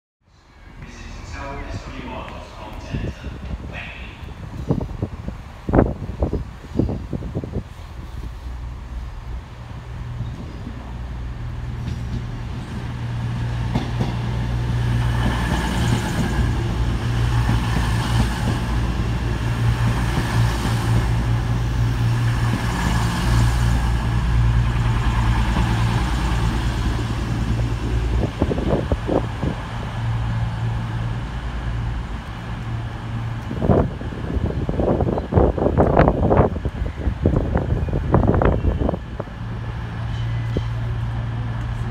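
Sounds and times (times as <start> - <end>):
train diesel engines humming: 0.3 - 41.9
wheel and rail noise: 0.3 - 41.9.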